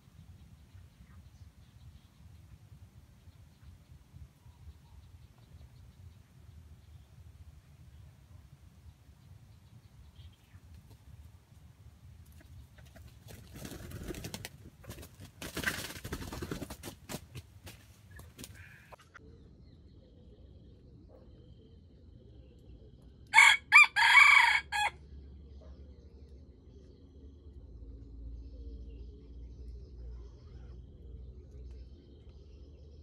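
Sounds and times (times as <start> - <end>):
rooster crowing: 23.3 - 25.0.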